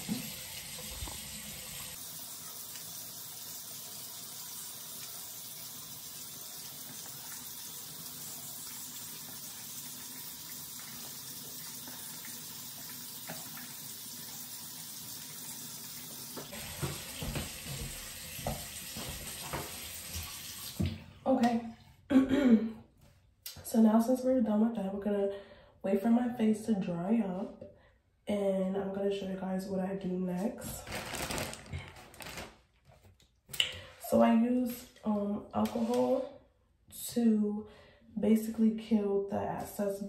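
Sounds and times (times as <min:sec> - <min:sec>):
tap water running into a sink: 0:00.0 - 0:21.1.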